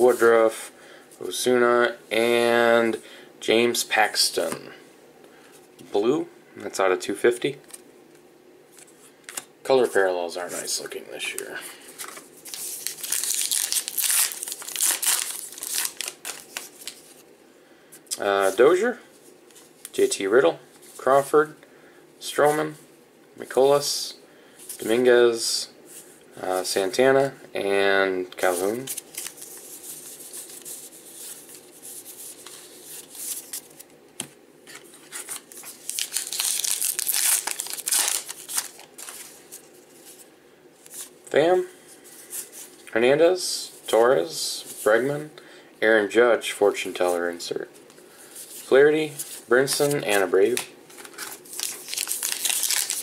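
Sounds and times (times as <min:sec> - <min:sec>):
wrapper tearing and crinkling: 0:12.1 - 0:17.1, 0:35.2 - 0:39.4, 0:51.0 - 0:53.0.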